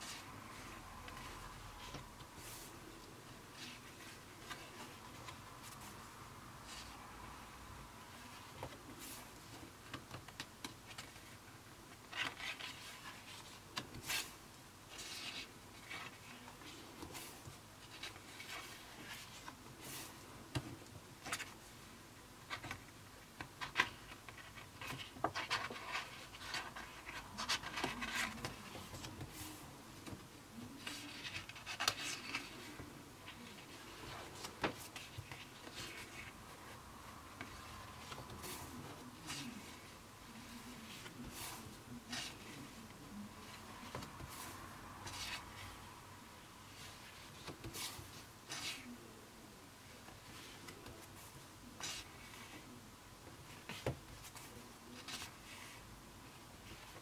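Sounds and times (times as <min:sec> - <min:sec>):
paper pages turning and rustling: 0:12.0 - 0:21.6, 0:22.5 - 0:45.8.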